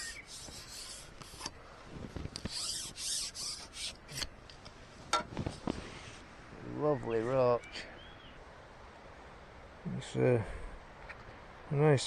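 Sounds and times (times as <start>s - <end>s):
rasping rustling scrapes: 0.0s - 4.3s.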